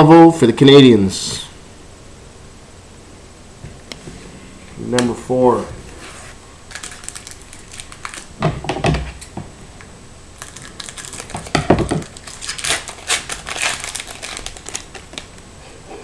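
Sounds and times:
scissors cutting foil pack: 6.7s - 8.3s, 10.4s - 15.3s
foil wrapper crinkling: 6.7s - 8.4s, 10.4s - 15.4s.

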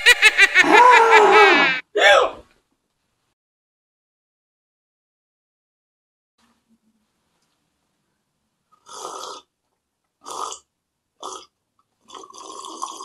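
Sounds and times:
man slurping and gulping water: 8.8s - 9.5s, 10.2s - 13.0s.

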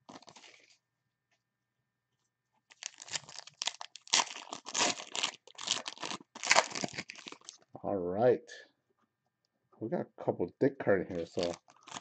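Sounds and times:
wrapper tearing and crinkling: 0.0s - 0.6s, 2.7s - 7.6s, 11.2s - 12.0s.

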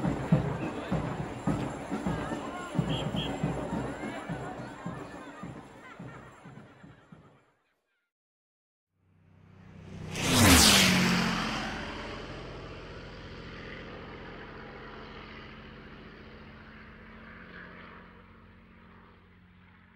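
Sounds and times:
propeller plane engine droning: 9.2s - 19.9s.

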